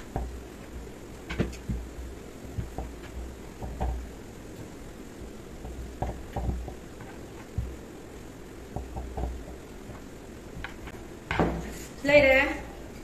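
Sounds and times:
rolling pin thumping on dough: 0:00.0 - 0:07.8, 0:08.7 - 0:09.6.

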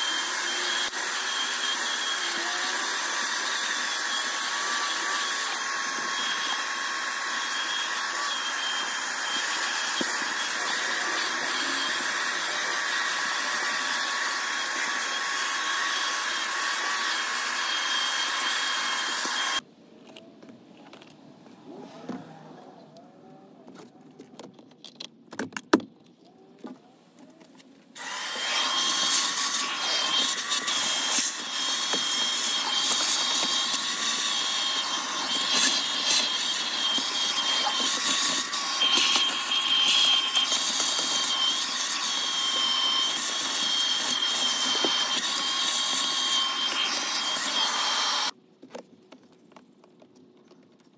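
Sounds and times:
vacuum cleaner running: 0:00.0 - 0:19.6, 0:28.0 - 0:48.4.

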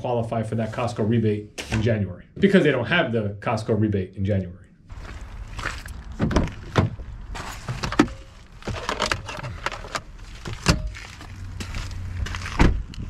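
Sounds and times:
handling clicks and knocks: 0:06.0 - 0:11.2.

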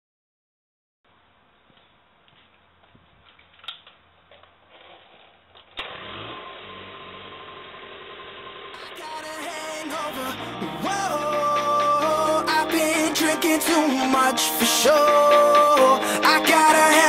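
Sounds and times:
small engine starting and running: 0:05.7 - 0:14.0.

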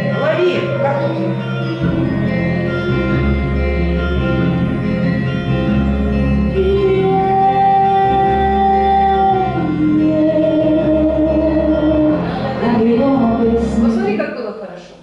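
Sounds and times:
person singing sustained notes: 0:00.0 - 0:14.0
backing track with pulsing bass: 0:00.0 - 0:14.2.

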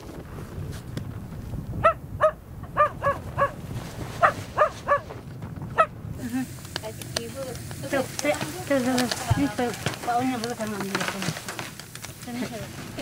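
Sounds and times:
puppy yapping: 0:04.2 - 0:05.1.

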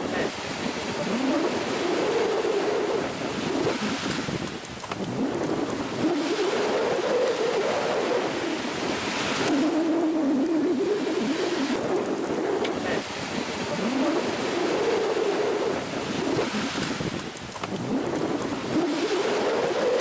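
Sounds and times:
small waves washing onto shore: 0:00.0 - 0:20.0
wind on microphone: 0:00.0 - 0:20.0
wavering hum: 0:05.0 - 0:16.7.

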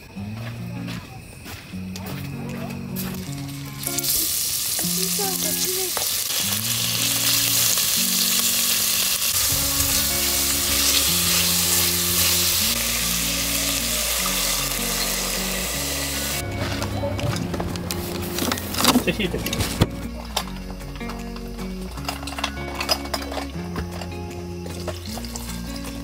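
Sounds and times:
beef sizzling in hot oil: 0:03.3 - 0:16.4.

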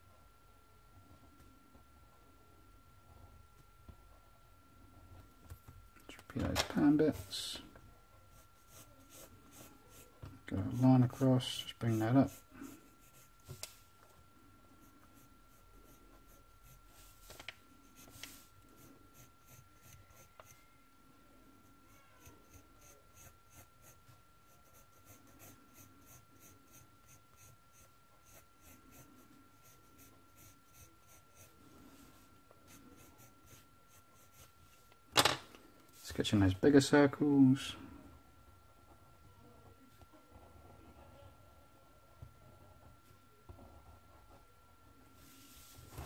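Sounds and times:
pencil scratching on paper: 0:08.3 - 0:13.6, 0:14.7 - 0:20.7, 0:21.6 - 0:34.6.

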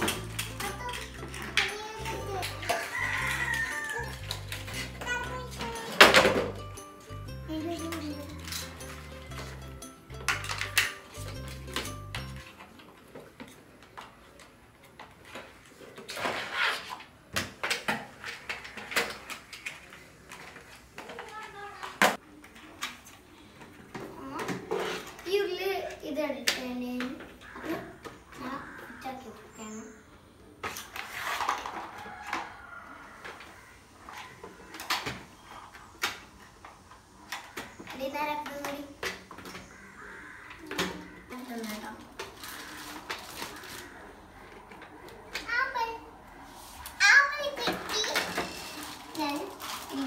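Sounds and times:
plastic toy pieces clicking: 0:00.0 - 0:06.2, 0:07.8 - 0:09.6, 0:10.2 - 0:12.6
background music: 0:00.0 - 0:12.6
plastic toys clicking and knocking: 0:00.0 - 0:28.2, 0:30.6 - 0:39.8, 0:40.4 - 0:45.8, 0:46.8 - 0:50.0
plastic rustle: 0:30.6 - 0:32.4, 0:41.3 - 0:44.6, 0:46.6 - 0:50.0.

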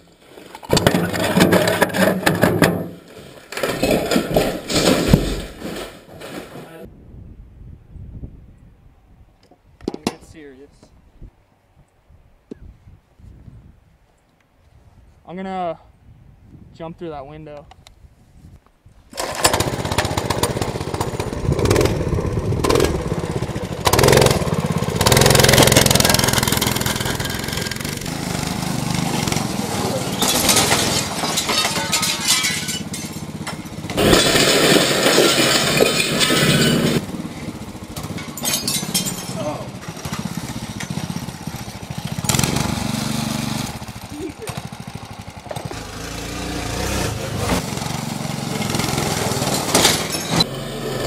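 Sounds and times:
small engine revving: 0:19.1 - 0:38.4, 0:39.4 - 0:51.0.

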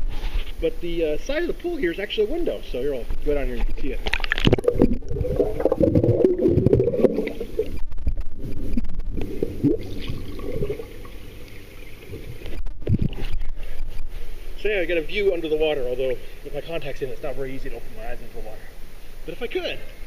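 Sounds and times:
water sloshing and gurgling: 0:03.6 - 0:13.8.

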